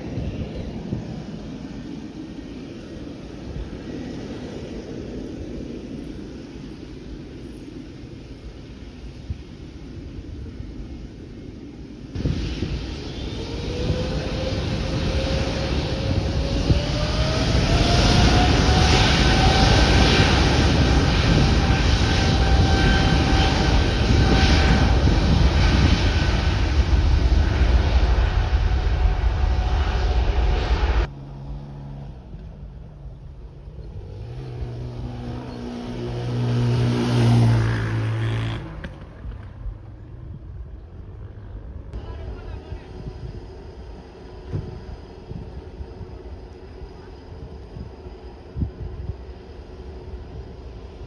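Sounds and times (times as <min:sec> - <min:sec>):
jet engines spooling up: 0:00.0 - 0:31.1, 0:42.1 - 0:51.0
airliner jet drone: 0:00.0 - 0:51.0.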